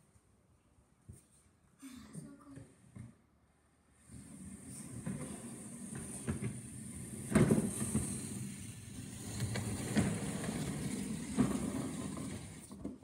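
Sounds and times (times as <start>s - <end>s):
toy car rumbling on tiles: 4.0s - 13.0s.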